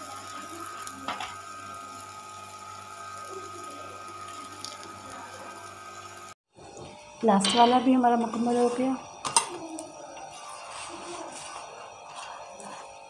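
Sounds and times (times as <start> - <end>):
oil sizzling on a hot pan: 0.0 - 6.4.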